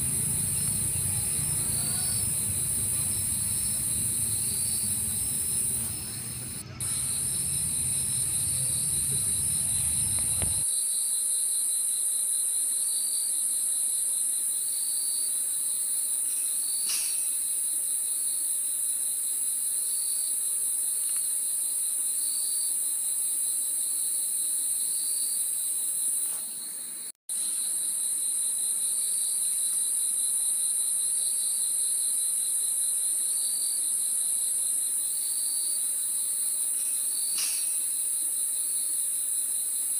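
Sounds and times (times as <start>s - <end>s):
low rumble: 0.0s - 10.6s
insect chirp: 0.0s - 39.9s
insects high-pitched drone: 0.0s - 39.9s.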